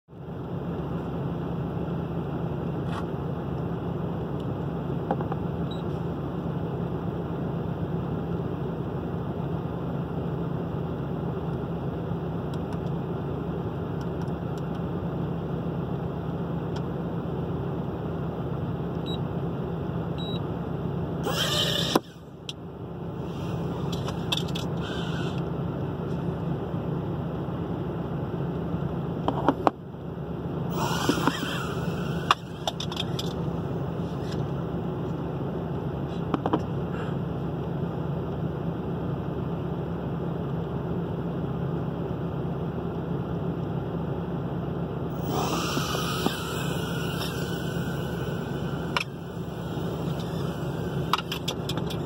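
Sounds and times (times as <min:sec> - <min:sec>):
quadcopter motors whining: 0:21.2 - 0:22.5, 0:23.2 - 0:25.5, 0:30.7 - 0:34.5, 0:45.1 - 0:52.0
steady hum: 0:30.6 - 0:35.2, 0:45.1 - 0:52.0
clicks: 0:48.6 - 0:49.1.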